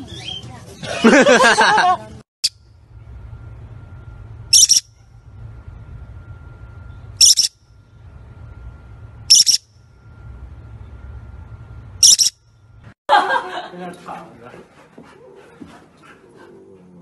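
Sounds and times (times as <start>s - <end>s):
low steady hum: 0.5s - 17.0s
parrot chirping calls: 4.5s - 4.9s, 7.2s - 7.6s, 9.3s - 9.6s, 12.0s - 12.4s.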